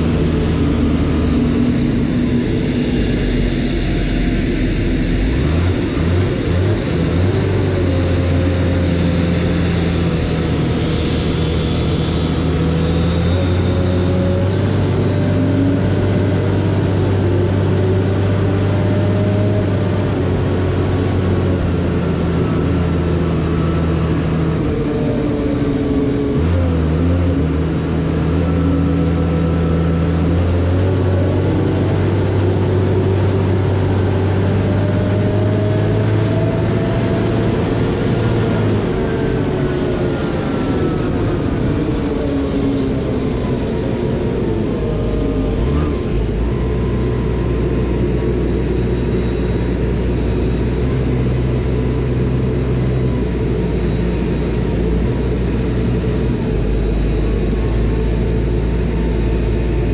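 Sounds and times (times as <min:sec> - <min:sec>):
aircraft tug engine humming: 0:00.0 - 0:59.9.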